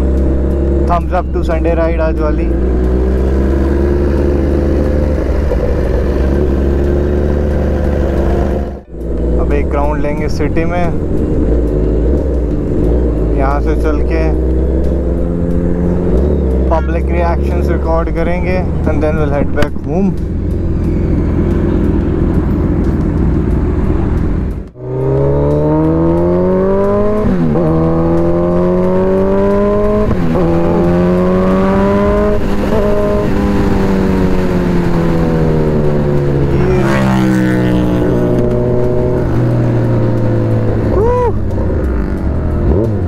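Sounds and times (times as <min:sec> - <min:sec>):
motorcycle engine revving through gears: 0:00.0 - 0:43.0
steady low drone: 0:00.0 - 0:43.0.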